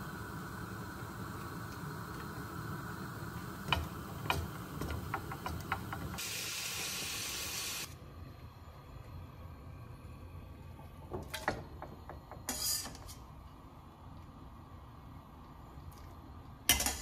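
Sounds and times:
steady high hiss: 0.0s - 10.7s.

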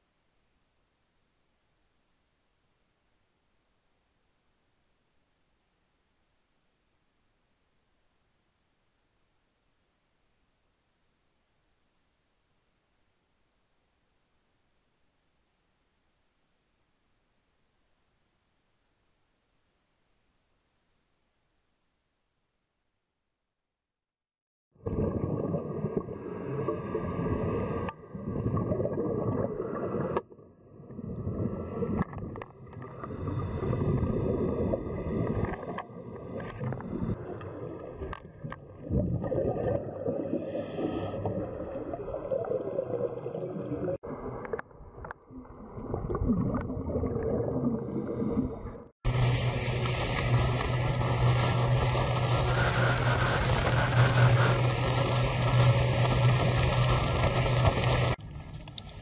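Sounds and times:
water noise: 24.8s - 59.0s
wind: 48.7s - 59.0s
boat engine humming: 49.1s - 59.0s
muffled underwater noise: 49.1s - 59.0s.

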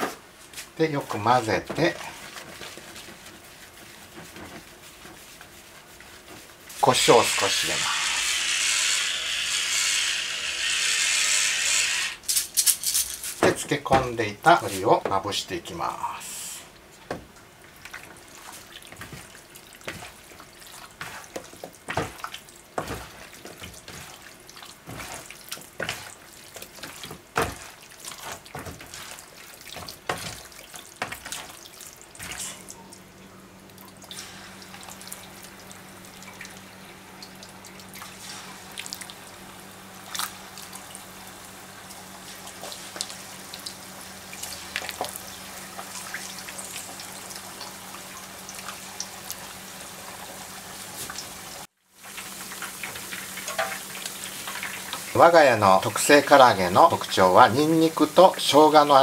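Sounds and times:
chicken deep-frying in oil: 0.0s - 12.2s, 13.6s - 59.0s
wet squelching of chicken in flour: 0.4s - 7.3s, 17.6s - 32.8s.

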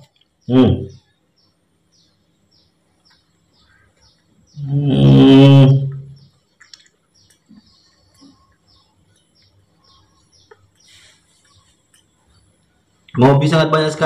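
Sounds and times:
small bird chirping: 0.0s - 13.3s.

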